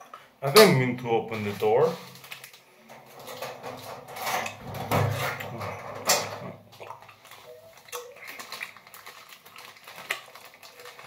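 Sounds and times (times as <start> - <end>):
chewing and mouth noises: 6.7 - 11.0.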